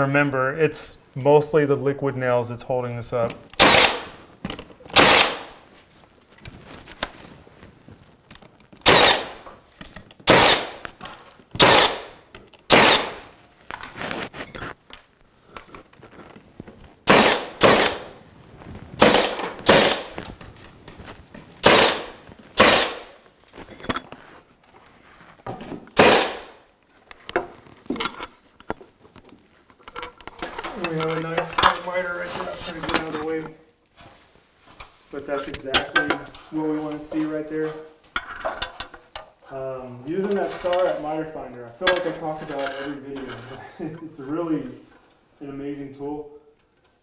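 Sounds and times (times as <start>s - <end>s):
nail gun firing: 3.6s - 4.1s, 4.9s - 5.6s, 8.8s - 9.4s, 10.2s - 10.8s, 11.6s - 13.3s, 17.1s - 18.2s, 19.0s - 20.2s, 21.6s - 23.2s, 26.0s - 26.6s.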